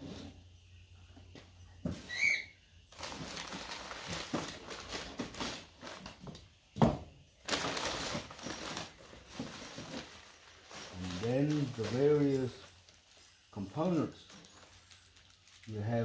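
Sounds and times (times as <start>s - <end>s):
paper bag rustling: 2.9s - 6.4s, 7.4s - 16.0s.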